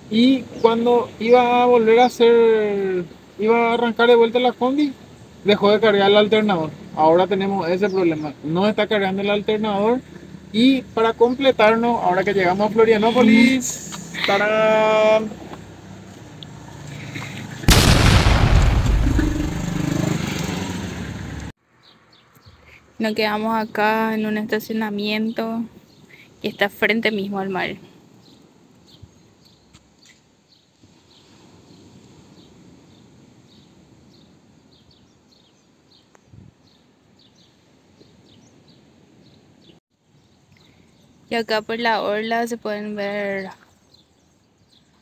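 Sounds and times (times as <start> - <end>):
low steady background rumble: 17.7 - 19.7
boom sound effect: 17.7 - 20.2
small birds chirping: 21.8 - 45.0.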